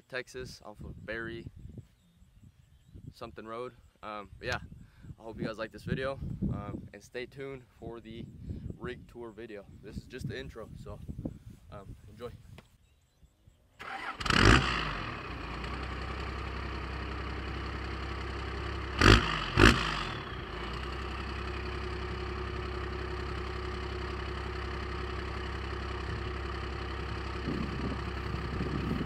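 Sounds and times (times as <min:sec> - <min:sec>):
diesel engine starting and idling: 0:13.8 - 0:29.0
engine throttle blips: 0:13.8 - 0:29.0.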